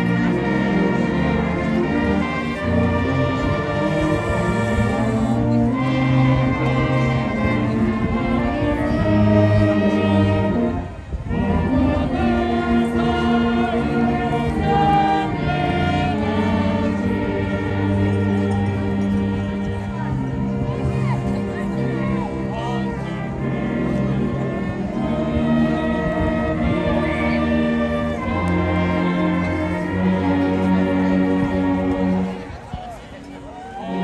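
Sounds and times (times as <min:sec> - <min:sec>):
band playing slow tune: 0:00.0 - 0:32.5
many voices singing: 0:01.2 - 0:10.7, 0:11.3 - 0:20.0, 0:22.6 - 0:30.7.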